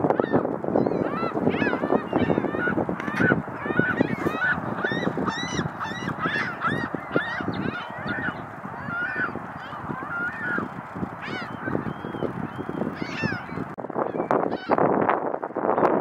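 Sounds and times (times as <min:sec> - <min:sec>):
geese honking: 0:00.0 - 0:13.7.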